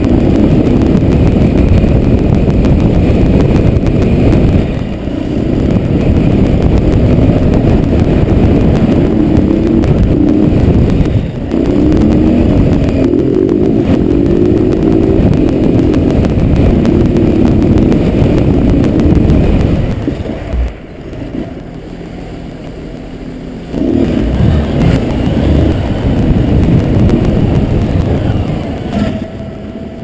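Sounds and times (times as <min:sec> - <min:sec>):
motorcycle engine running: 0:00.0 - 0:30.0
wind rush over helmet: 0:00.0 - 0:30.0.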